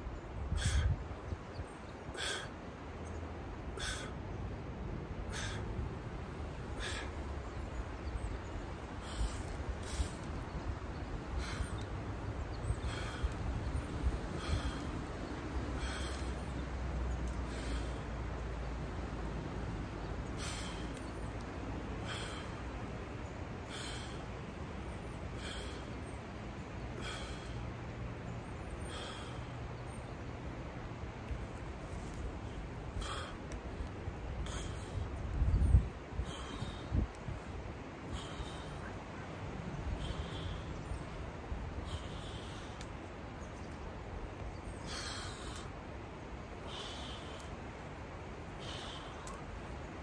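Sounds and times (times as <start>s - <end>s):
steady rushing hiss: 0.0s - 50.0s
man breathing sharply: 2.2s - 2.5s, 3.8s - 4.2s, 5.3s - 5.7s, 6.8s - 7.2s, 9.0s - 10.3s, 11.4s - 11.9s, 12.8s - 15.0s, 15.8s - 16.5s, 17.3s - 18.2s, 20.4s - 21.1s, 22.0s - 22.8s, 23.7s - 24.3s, 25.4s - 26.0s, 26.9s - 27.6s, 28.8s - 29.6s, 32.9s - 33.6s, 36.2s - 37.1s, 38.0s - 39.0s, 39.8s - 41.1s, 41.8s - 43.0s, 44.8s - 45.7s, 46.6s - 47.6s, 48.6s - 49.4s.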